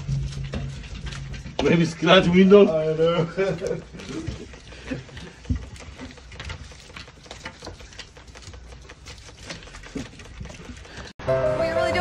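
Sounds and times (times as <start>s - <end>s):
brush scrubbing wet glass: 0.0s - 11.2s
water patter: 0.0s - 11.2s.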